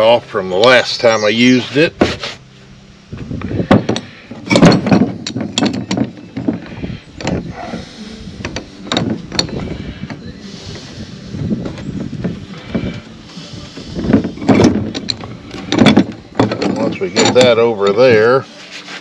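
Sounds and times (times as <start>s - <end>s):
metal clicks and knocks: 3.7s - 7.5s, 8.4s - 10.2s, 14.2s - 18.1s.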